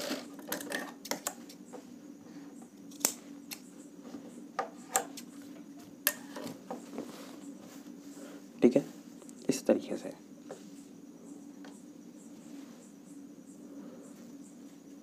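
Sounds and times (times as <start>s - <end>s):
low steady hum: 0.0s - 15.0s
scissors snipping: 2.9s - 3.7s.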